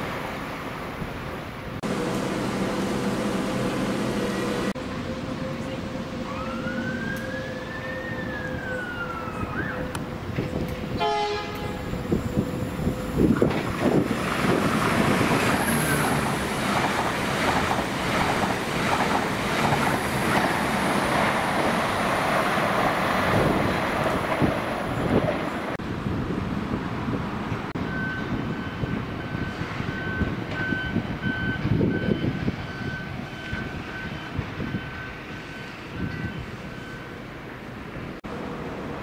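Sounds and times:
train wheels and carriages passing: 0.0 - 39.0
train horn blast: 9.7 - 12.4.

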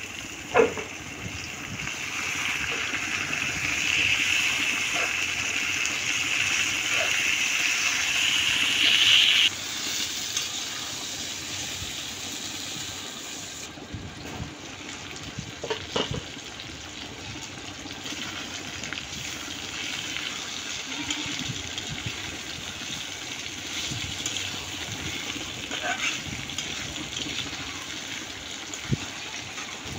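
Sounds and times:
chicken sizzling in hot oil: 0.0 - 29.9.

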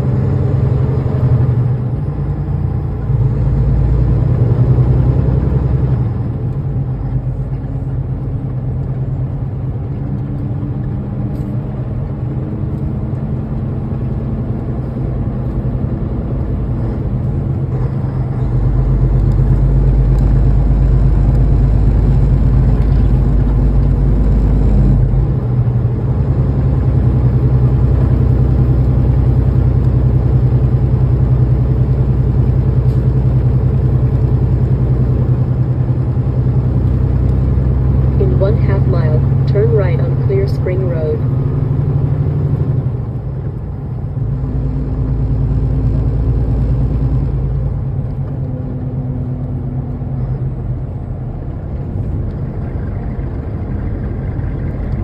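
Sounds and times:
truck diesel engine drone: 0.0 - 55.0.

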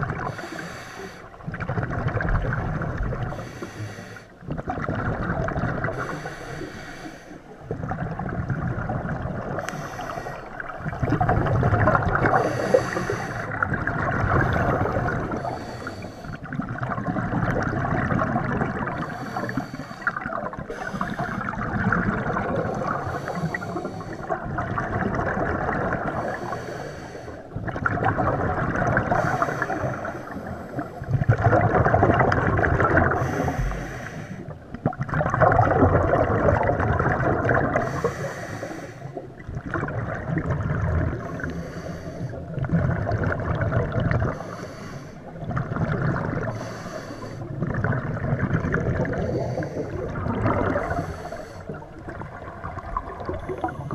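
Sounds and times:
exhaust bubbling underwater: 0.0 - 3.7, 4.3 - 6.4, 7.4 - 44.6, 45.2 - 53.9
regulator inhale hiss: 0.3 - 1.4, 3.3 - 4.3, 5.9 - 7.5, 9.6 - 10.6, 12.3 - 13.6, 15.3 - 16.5, 19.0 - 21.4, 23.0 - 24.3, 26.2 - 27.5, 29.1 - 31.1, 33.2 - 34.6, 37.8 - 39.3, 41.3 - 42.5, 44.3 - 45.3, 46.4 - 47.6, 49.1 - 50.1, 50.8 - 51.8.

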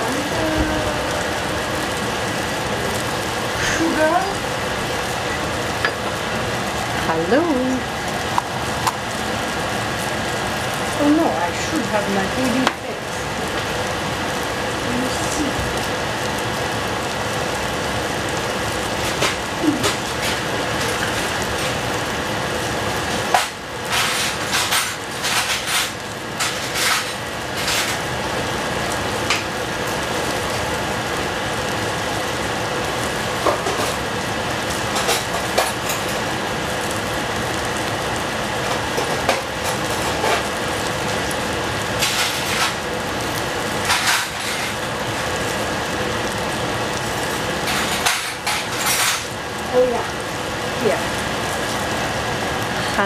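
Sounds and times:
food sizzling in oil: 0.0 - 53.0
utensil scraping a pan: 23.3 - 28.1, 43.9 - 44.8.

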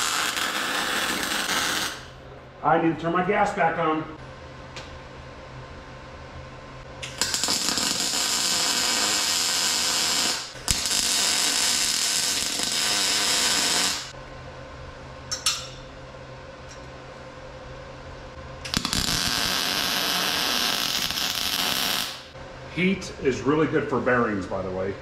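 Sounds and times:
welder arc buzzing: 0.0 - 2.2, 6.9 - 14.2, 18.6 - 22.4.

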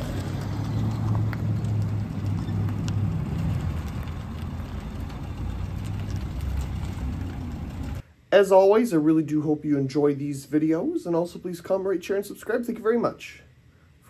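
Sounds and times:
car engine low hum: 0.0 - 8.0.

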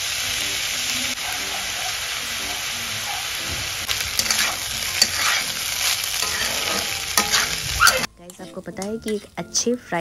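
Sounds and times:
rice sizzling in oil: 0.0 - 8.1
metal spatula scraping: 3.8 - 9.4.

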